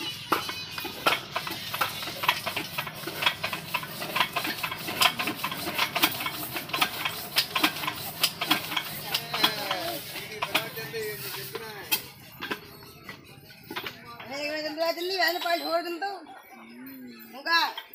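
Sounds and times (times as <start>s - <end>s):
diesel engine knocking: 0.3s - 14.1s.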